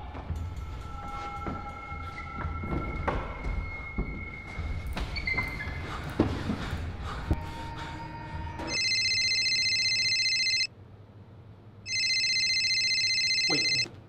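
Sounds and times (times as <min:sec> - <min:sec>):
telephone ringing: 0:08.7 - 0:10.7, 0:11.9 - 0:13.9.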